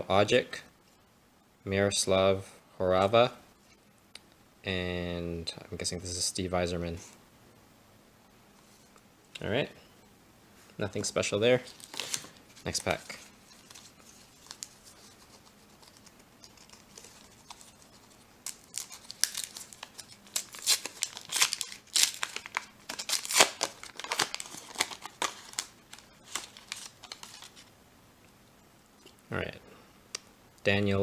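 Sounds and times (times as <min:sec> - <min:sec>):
foil wrapper tearing and crinkling: 0:11.7 - 0:15.2, 0:15.8 - 0:27.6.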